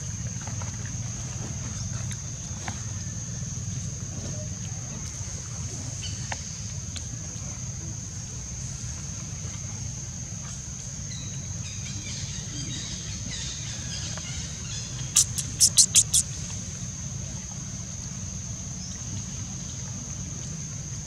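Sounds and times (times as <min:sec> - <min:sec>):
sharp clicks: 0:15.2 - 0:16.2.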